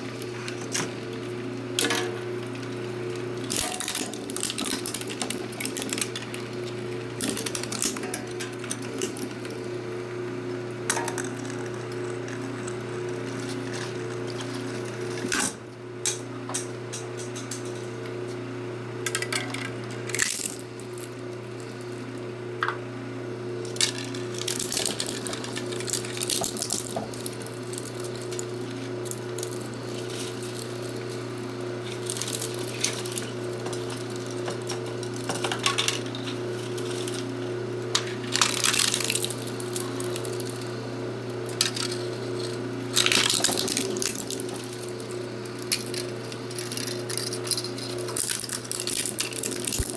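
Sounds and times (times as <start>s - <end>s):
shredder motor humming: 0.0s - 49.9s
plastic parts cracking and crunching: 3.4s - 9.6s, 19.2s - 21.1s, 23.7s - 37.3s, 37.9s - 40.6s, 41.5s - 49.9s.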